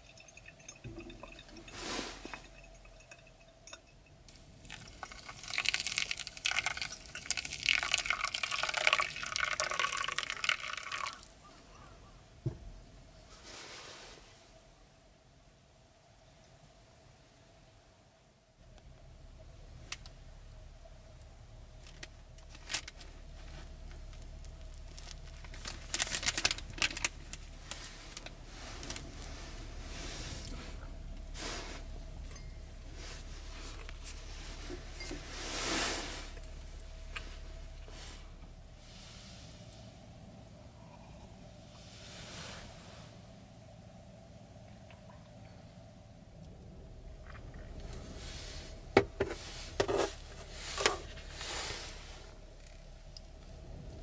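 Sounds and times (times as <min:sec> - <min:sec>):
liquid pouring into vessel: 0:00.0 - 0:03.9, 0:04.6 - 0:11.3
steady low hum: 0:00.0 - 0:09.1, 0:14.4 - 0:54.0
crinkling and rustling: 0:00.1 - 0:11.2, 0:21.7 - 0:39.8, 0:47.1 - 0:54.0.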